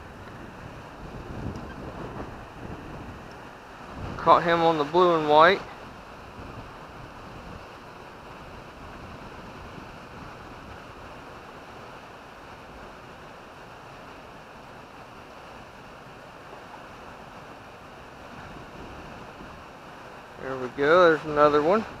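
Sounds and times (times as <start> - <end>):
wind buffeting microphone: 0.0 - 11.9, 16.2 - 22.0
moving water: 0.0 - 22.0.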